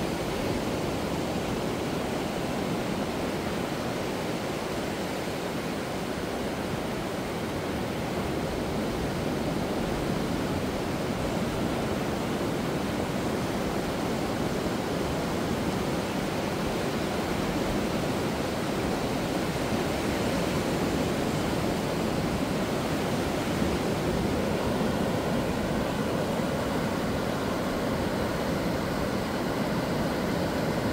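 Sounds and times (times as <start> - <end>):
surf washing up a beach: 0.0 - 30.9.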